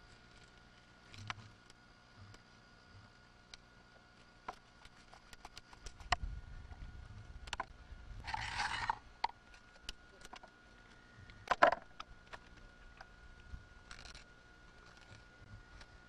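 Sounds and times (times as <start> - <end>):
small clicks: 4.5 - 6.2
knife scraping fish: 8.3 - 9.0.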